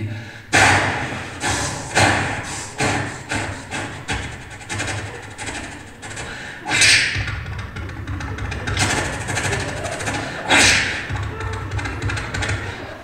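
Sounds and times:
man imitating steam locomotive chuffing: 0.0s - 13.0s
hissing burst from mouth: 0.5s - 7.9s, 8.7s - 11.3s.

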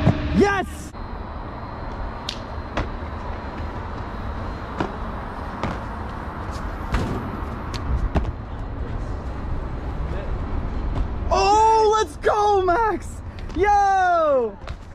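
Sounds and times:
sneakers and hands striking walls: 5.6s - 8.4s.

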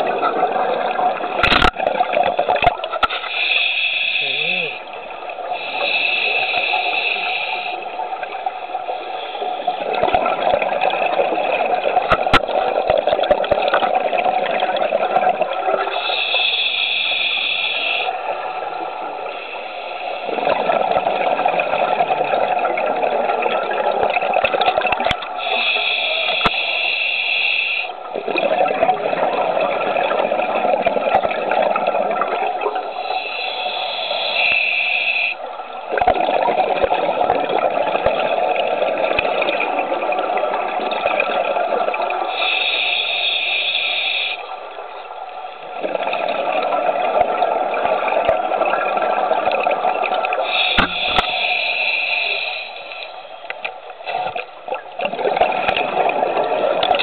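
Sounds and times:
diver breathing through regulator: 3.1s - 4.9s, 5.6s - 7.9s, 15.9s - 18.2s, 25.4s - 28.0s, 32.9s - 35.4s, 42.2s - 44.5s, 50.4s - 53.3s.

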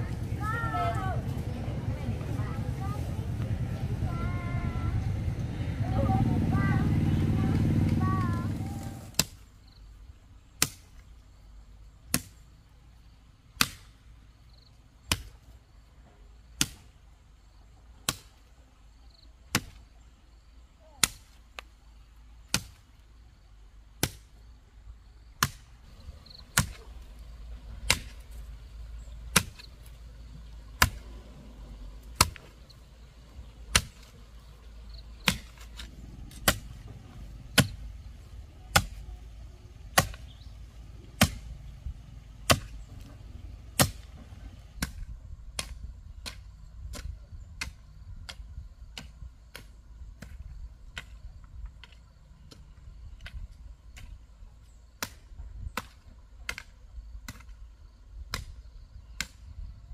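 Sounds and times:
hand tool striking: 38.7s - 39.0s.

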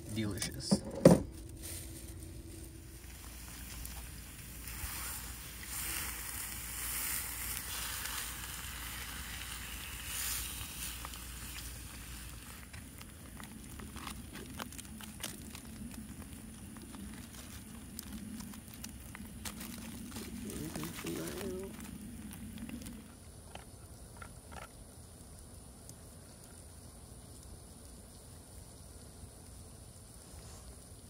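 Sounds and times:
burning wood crackling: 0.0s - 31.0s
steak sizzling in a pan: 2.9s - 13.9s.

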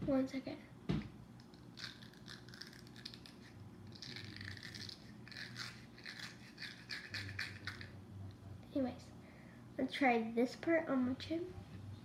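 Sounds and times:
facial pad scratchy rubbing: 1.8s - 7.9s.

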